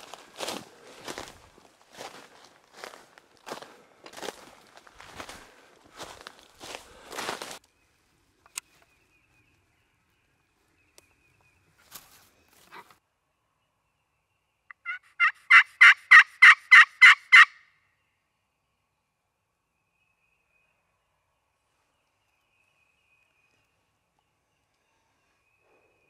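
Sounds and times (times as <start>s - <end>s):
shuffle in dry leaves: 0.0s - 7.6s
turkey yelps: 14.8s - 17.6s.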